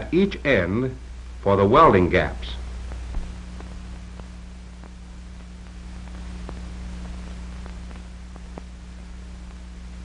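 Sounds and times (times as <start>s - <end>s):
film soundtrack hum and hiss: 0.0s - 10.0s
faint crackle clicks: 2.8s - 10.0s.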